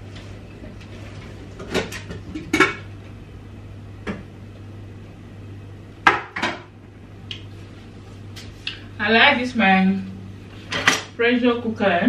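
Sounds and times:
steady low hum: 0:00.0 - 0:12.0
pots and dishes clanking: 0:01.6 - 0:02.9.

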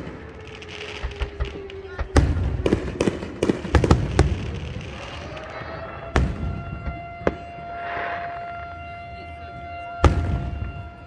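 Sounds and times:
fireworks booming bangs: 0:00.0 - 0:11.0
siren wailing: 0:00.0 - 0:11.0.

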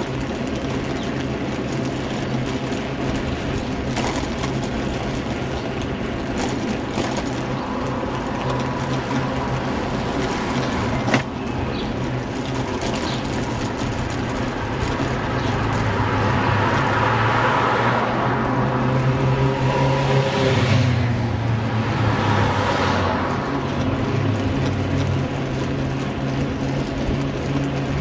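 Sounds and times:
road traffic rumble: 0:00.0 - 0:28.0.

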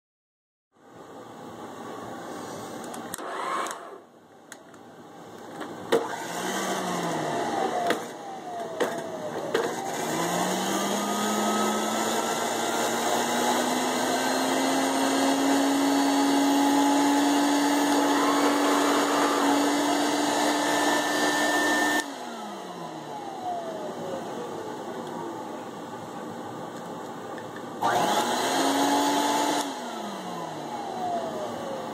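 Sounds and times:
vacuum cleaner motor humming: 0:03.1 - 0:04.0, 0:06.0 - 0:25.8, 0:27.8 - 0:31.9.

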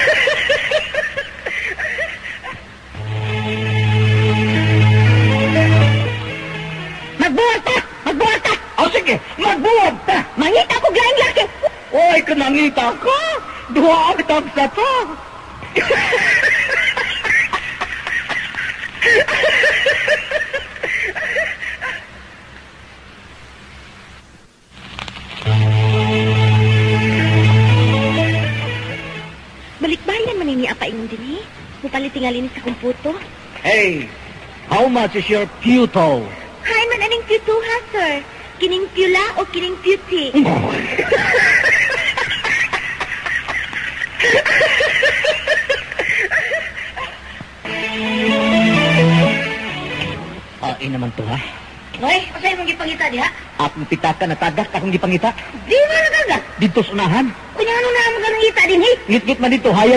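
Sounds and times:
person laughing: 0:00.0 - 0:02.7, 0:15.7 - 0:22.1, 0:40.7 - 0:47.4
faint hiss: 0:00.0 - 0:59.9
music jingle with low notes: 0:03.0 - 0:07.3, 0:25.5 - 0:29.4, 0:47.7 - 0:50.6.

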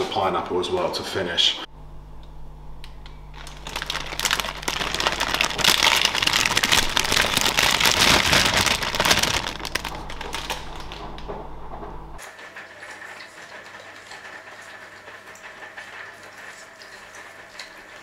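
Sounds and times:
plastic bag crinkling: 0:03.3 - 0:11.2.

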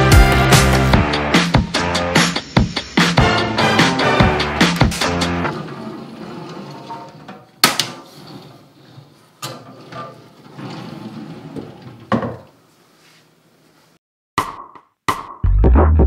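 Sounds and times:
sliding glass doors rumbling: 0:04.5 - 0:07.4, 0:08.1 - 0:12.2.

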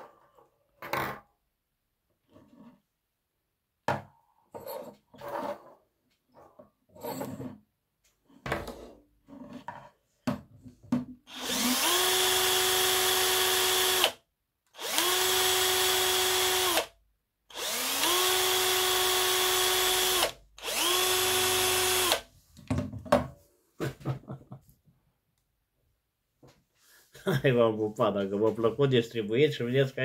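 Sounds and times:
drill spinning dynamo whine: 0:11.3 - 0:14.2, 0:14.8 - 0:16.9, 0:17.5 - 0:22.3.

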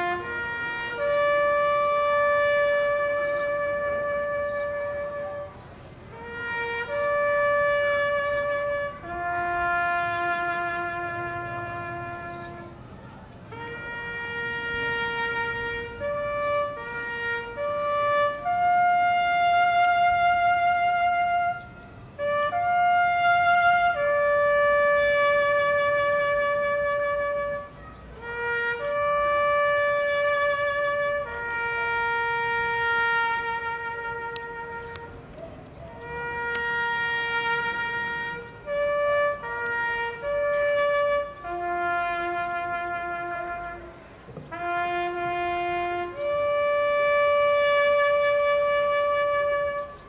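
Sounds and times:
bugle playing military call: 0:00.0 - 0:50.0.

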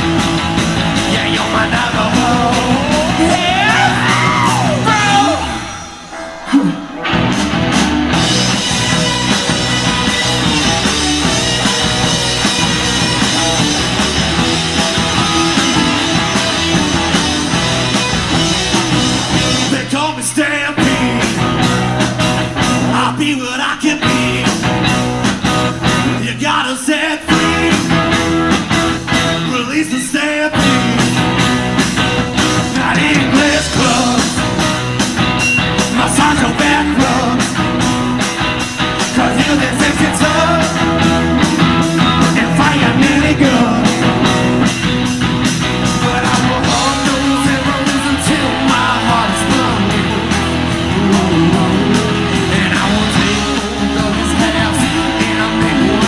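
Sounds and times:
drums: 0:00.0 - 0:56.0
electric guitars: 0:00.0 - 0:56.0
person singing: 0:01.0 - 0:07.0, 0:19.5 - 0:21.8, 0:22.8 - 0:24.8, 0:26.1 - 0:28.3, 0:32.6 - 0:34.9, 0:35.8 - 0:38.1, 0:39.0 - 0:44.5, 0:45.8 - 0:56.0.

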